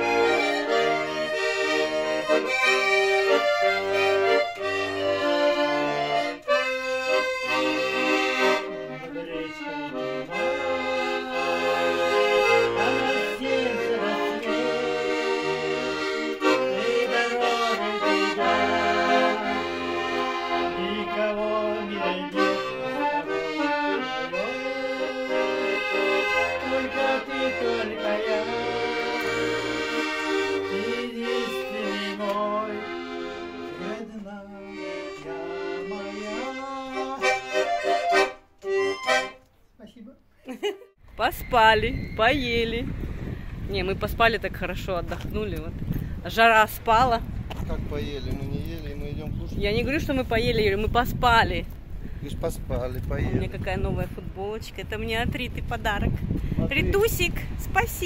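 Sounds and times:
accordion playing a tune: 0:00.0 - 0:40.0.

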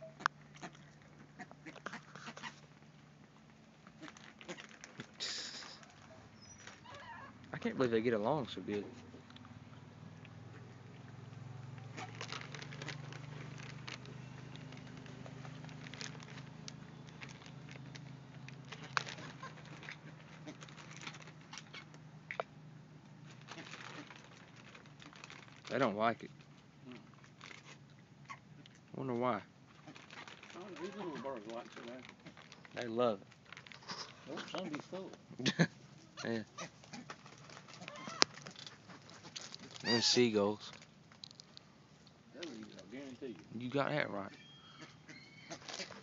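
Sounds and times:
bills pecking on ground: 0:00.0 - 0:46.0
bird hiss: 0:05.2 - 0:05.9.

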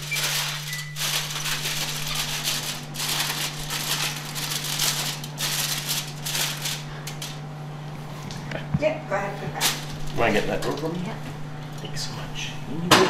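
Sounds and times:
aluminum foil crinkling: 0:00.0 - 0:07.5, 0:09.6 - 0:11.1
steady low hum: 0:00.0 - 0:13.0.

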